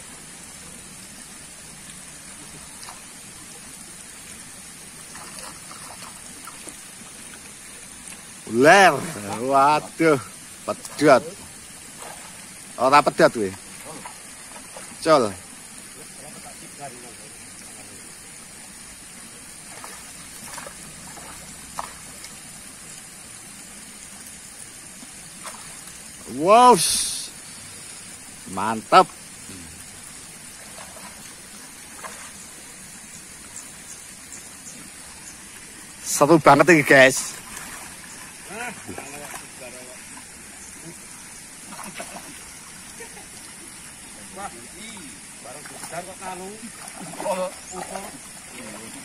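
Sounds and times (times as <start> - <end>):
water trickling and splashing: 0.0 - 49.0
fish splashing at surface: 41.6 - 42.5.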